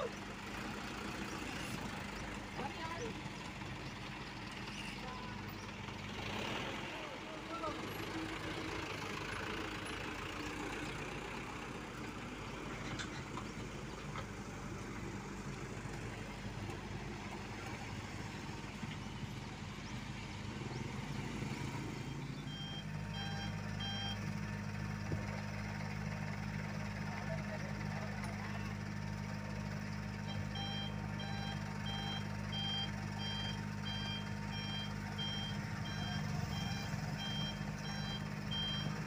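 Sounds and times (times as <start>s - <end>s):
diesel engines running: 0.0s - 39.0s
reversing alarm beeping: 22.5s - 24.2s, 30.3s - 39.0s.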